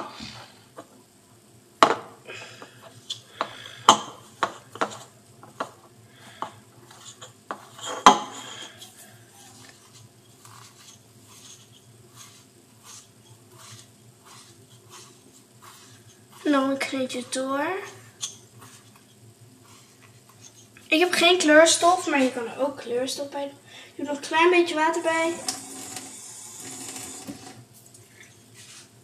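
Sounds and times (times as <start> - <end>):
utensil stirring dough in bowl: 2.8 - 22.4, 26.9 - 29.0.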